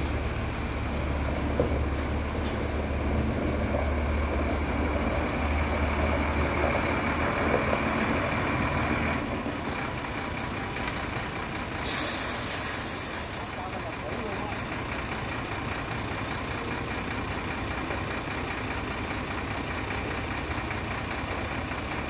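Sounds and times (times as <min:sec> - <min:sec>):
diesel truck engine running: 0:00.0 - 0:22.0.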